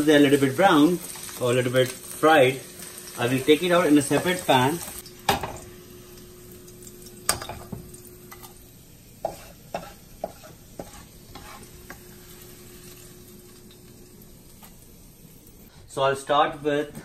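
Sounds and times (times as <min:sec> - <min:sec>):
faint oil sizzle: 0:00.0 - 0:15.7
spatula scraping frying pans: 0:09.2 - 0:13.8.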